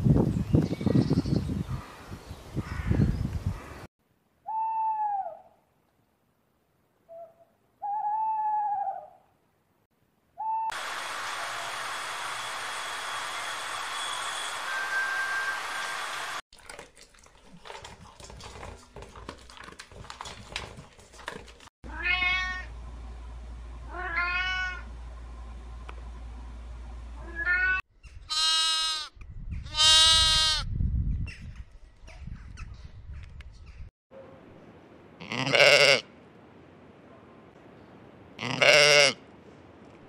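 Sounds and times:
cat meowing: 21.9 - 22.7, 23.9 - 24.8, 27.2 - 27.8
sheep bleat: 28.3 - 29.1, 29.7 - 30.6, 35.2 - 36.1, 38.4 - 39.2.

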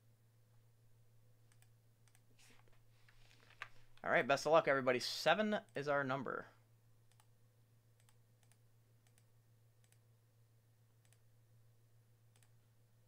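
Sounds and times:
computer mouse clicks: 1.5 - 2.3, 7.1 - 7.3, 8.0 - 10.0, 11.0 - 11.2, 12.3 - 12.6.

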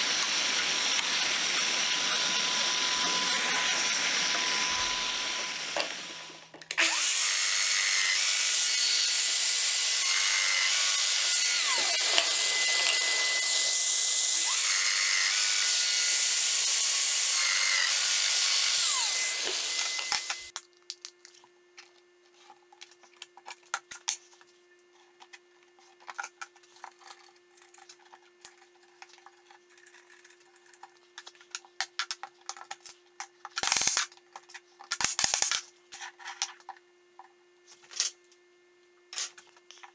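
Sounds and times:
power joiner cutting wood: 0.0 - 20.5.

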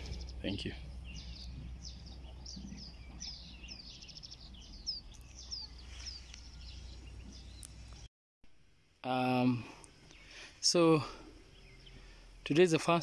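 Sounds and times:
bird trill: 0.0 - 8.1
small birds chirping: 0.0 - 8.1, 9.0 - 13.0.

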